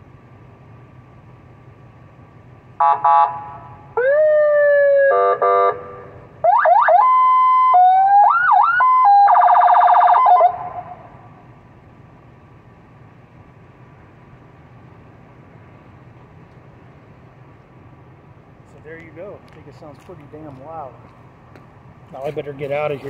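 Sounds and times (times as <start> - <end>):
buzzy horn blasts: 2.8 - 3.8, 5.1 - 6.2
electronic siren cycling tones: 4.0 - 11.0.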